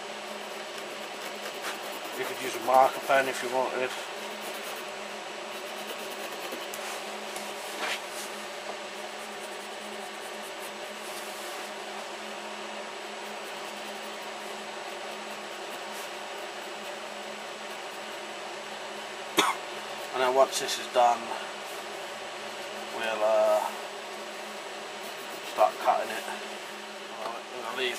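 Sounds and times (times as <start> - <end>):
room tone hiss and hum: 0.0 - 27.9
pencil scratching on paper: 0.2 - 7.1, 9.0 - 11.7, 13.0 - 18.4, 25.0 - 26.3.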